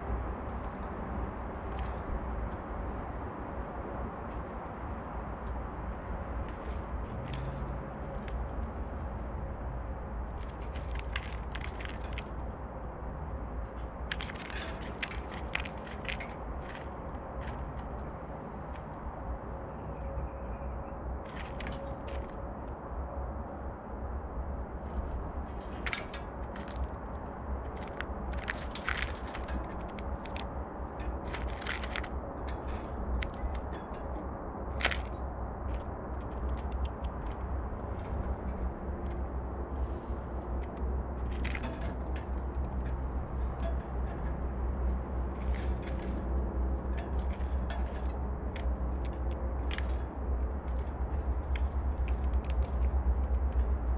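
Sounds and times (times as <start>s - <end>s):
steady low rumble: 0.0s - 53.9s
birds cracking peanuts: 10.3s - 19.1s, 21.2s - 22.8s, 24.8s - 53.9s.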